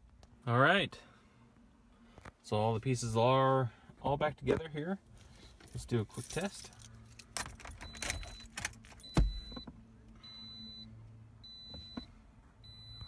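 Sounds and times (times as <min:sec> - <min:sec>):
keys rattling: 0:05.6 - 0:09.1
dashboard warning chime beeping: 0:07.7 - 0:13.0.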